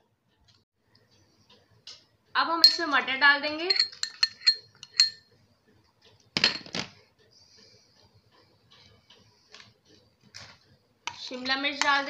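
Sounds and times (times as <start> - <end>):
glass bowl clinking on plate: 2.6 - 2.8, 3.7 - 5.2.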